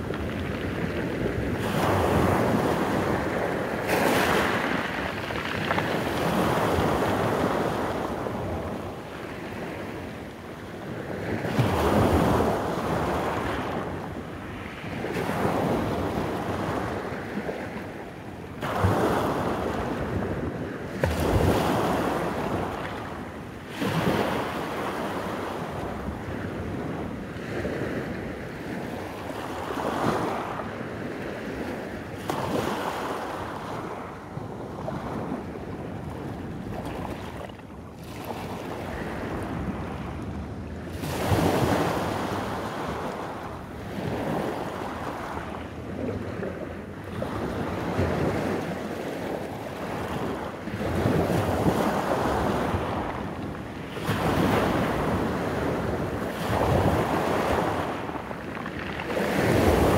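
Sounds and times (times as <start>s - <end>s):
waves breaking on pebble beach: 0.0s - 9.8s, 40.9s - 46.4s, 53.9s - 59.9s.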